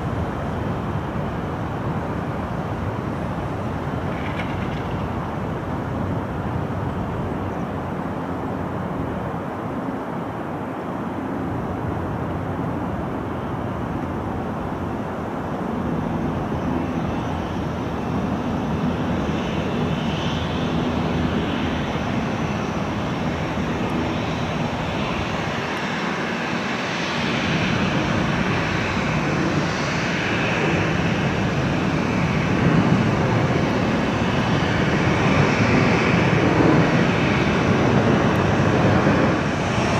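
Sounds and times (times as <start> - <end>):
high engine whine: 0.0 - 39.9
jet engines at low power: 0.0 - 39.9.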